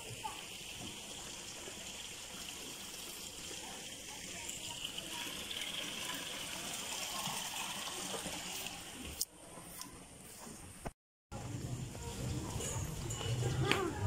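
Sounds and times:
water rushing in a drain: 0.0s - 9.2s.

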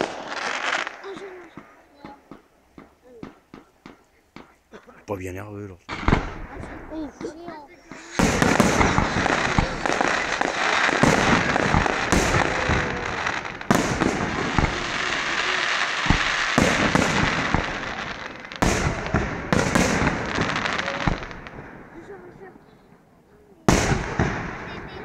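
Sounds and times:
fireworks bangs: 0.0s - 25.0s
fireworks crackling: 0.0s - 25.0s.

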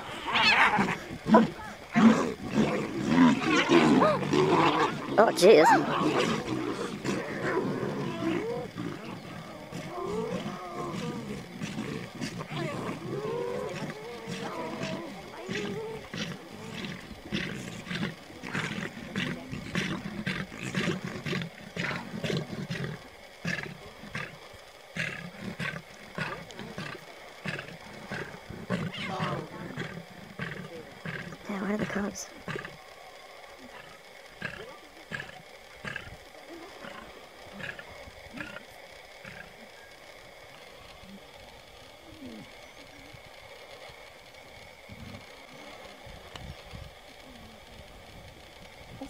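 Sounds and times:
hyenas giving high-pitched cries: 0.0s - 24.4s, 25.0s - 32.8s
lion growling low: 0.0s - 32.8s, 33.6s - 39.8s
low rumbling background noise: 0.0s - 49.0s.

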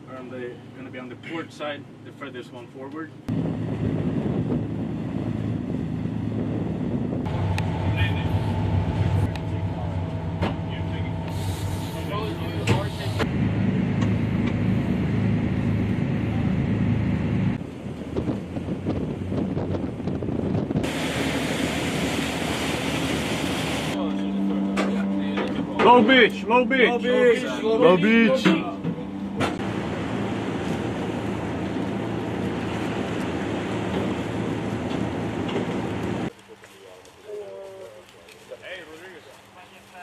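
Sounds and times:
boat diesel engines running: 3.1s - 36.4s
wind buffeting microphone: 3.3s - 11.8s, 12.6s - 24.0s
water rushing past hull: 20.7s - 24.0s, 29.6s - 36.3s
rushing wash of water: 20.8s - 24.0s.

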